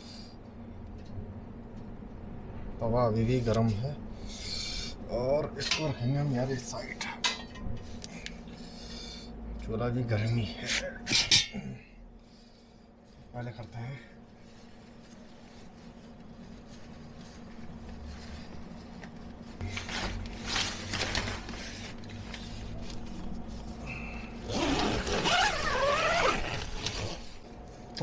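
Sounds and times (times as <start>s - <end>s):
scraping and rustling containers: 14.5s - 23.8s
rubbing squeak: 24.5s - 27.2s.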